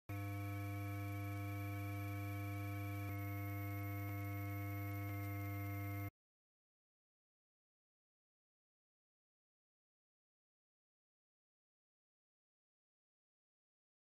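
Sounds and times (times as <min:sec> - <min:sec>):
buzzy electrical hum: 0:00.1 - 0:06.1.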